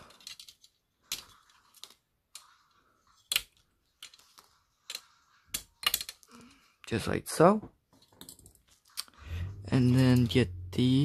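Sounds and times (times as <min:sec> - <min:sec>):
plastic parts snapping off: 0:04.9 - 0:06.3.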